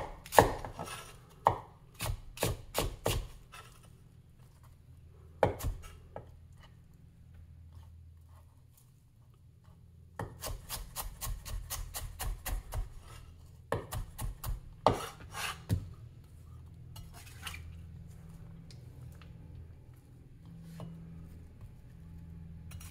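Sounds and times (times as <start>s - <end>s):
cleaver chopping on wooden board: 0.0s - 3.3s.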